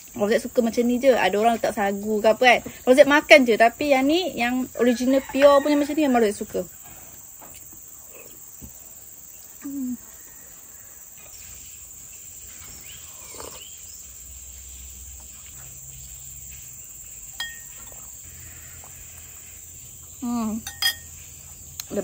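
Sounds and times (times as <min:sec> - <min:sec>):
insects droning: 0:00.0 - 0:22.0
person humming: 0:09.6 - 0:10.0
metal spoon clinking on bowl: 0:17.4 - 0:17.8, 0:20.6 - 0:21.2.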